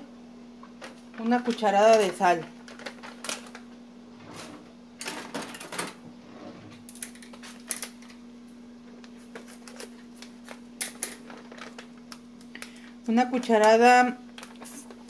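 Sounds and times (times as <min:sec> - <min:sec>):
steady low hum: 0:00.0 - 0:15.0
plastic bag crinkling: 0:02.0 - 0:03.7, 0:09.1 - 0:12.9.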